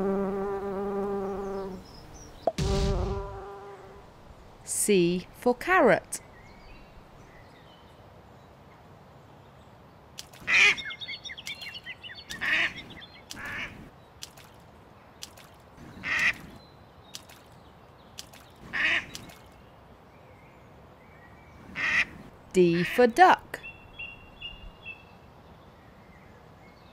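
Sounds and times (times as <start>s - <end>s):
duck quacking: 12.3s - 12.8s.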